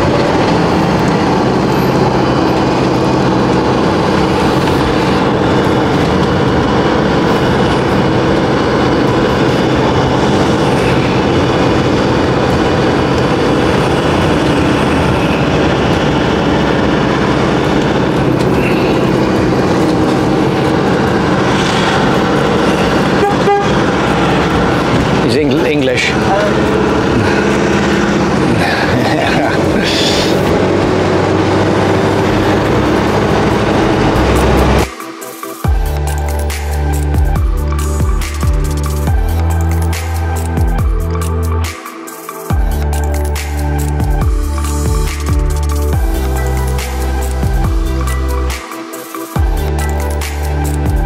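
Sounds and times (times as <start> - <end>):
road noise: 0.0 - 51.0
vehicle engine hum: 0.0 - 51.0.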